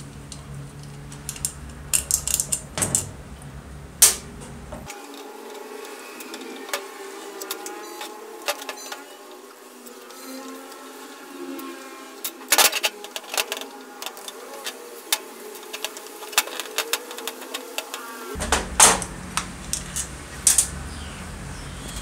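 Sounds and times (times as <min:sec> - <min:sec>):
sharp metal clicks and knocks: 0:00.0 - 0:04.9.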